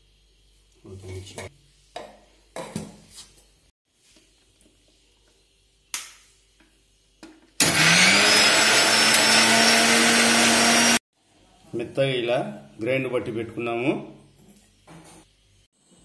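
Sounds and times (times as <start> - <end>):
mixer grinder motor running: 7.6 - 11.0.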